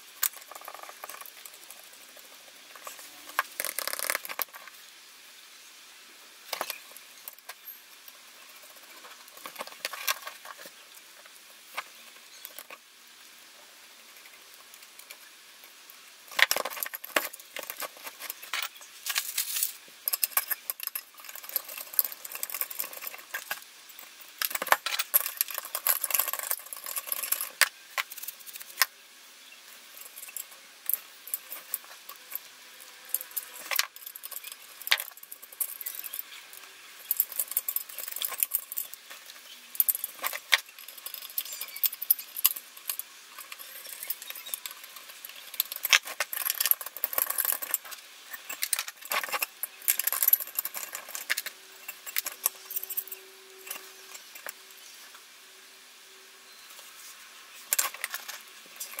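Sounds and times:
metallic clinks and scrapes: 0.1 - 4.8, 6.5 - 12.8, 14.1 - 28.9, 29.6 - 55.2, 56.5 - 59.0.

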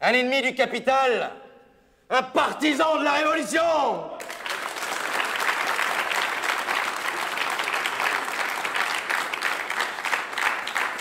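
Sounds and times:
crowd applauding: 4.2 - 11.0.

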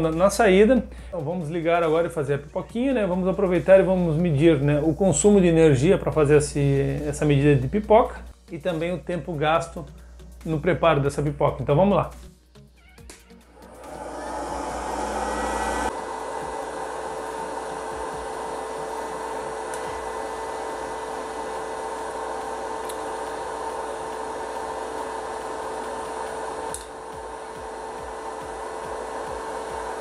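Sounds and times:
popcorn maker fan whirring: 13.5 - 30.0.

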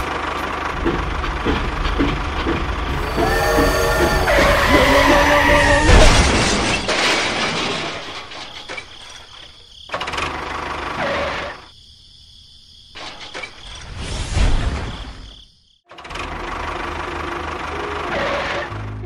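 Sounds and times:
tractor engine running: 0.0 - 7.3, 15.9 - 18.1.

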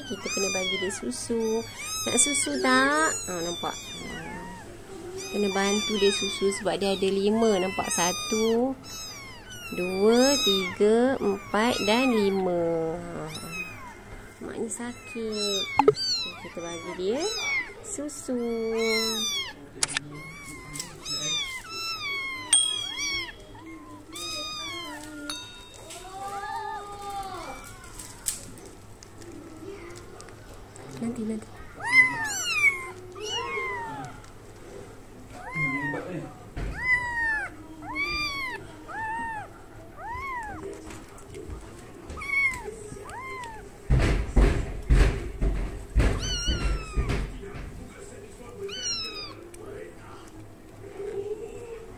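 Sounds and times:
kittens meowing: 0.0 - 34.5, 35.2 - 51.9
loud rustling knock: 43.9 - 47.9.

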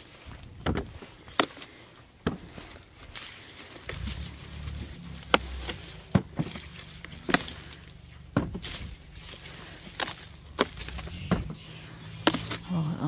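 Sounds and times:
peppers snapping off plants: 1.3 - 1.7, 9.9 - 11.6, 12.2 - 12.8.

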